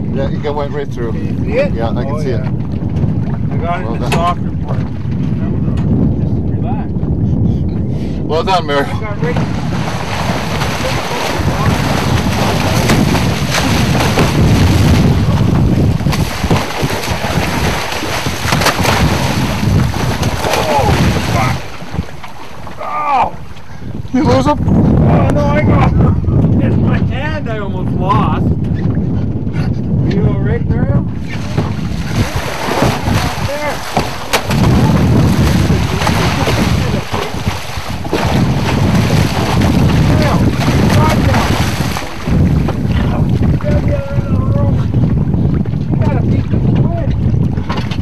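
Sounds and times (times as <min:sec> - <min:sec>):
wind buffeting microphone: 0:00.0 - 0:48.0
sea wash: 0:08.0 - 0:26.3, 0:30.6 - 0:48.0
water churning and splashing: 0:08.6 - 0:26.0, 0:31.1 - 0:48.0
sharp slaps of water: 0:09.3 - 0:22.9, 0:31.2 - 0:43.7.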